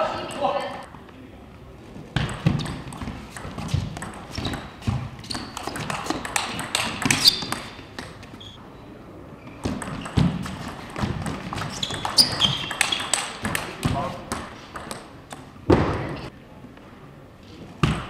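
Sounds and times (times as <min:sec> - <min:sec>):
shoe squeaks on floor: 0:04.3 - 0:05.8, 0:07.1 - 0:07.8, 0:08.4 - 0:08.6, 0:11.7 - 0:13.2
table tennis ball clicking: 0:05.3 - 0:08.2, 0:09.8 - 0:13.7.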